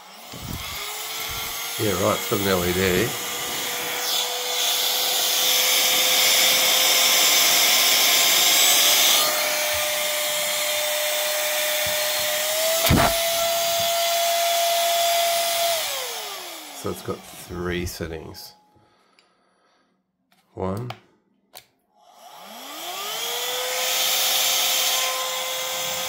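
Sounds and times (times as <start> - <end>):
air duster fan whining: 0.0 - 19.0.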